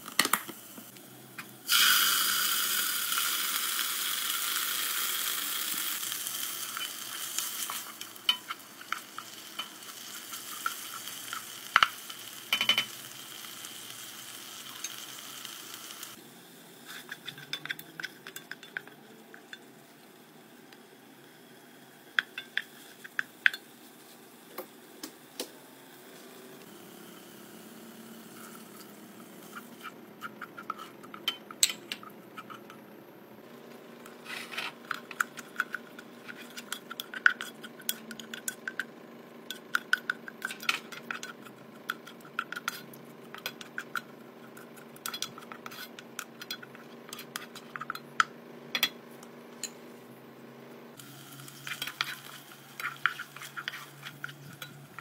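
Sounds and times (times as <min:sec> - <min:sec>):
spatula scraping a saucepan: 0:16.8 - 0:19.0, 0:29.4 - 0:32.8, 0:34.2 - 0:38.6, 0:40.0 - 0:48.0, 0:51.6 - 0:55.0.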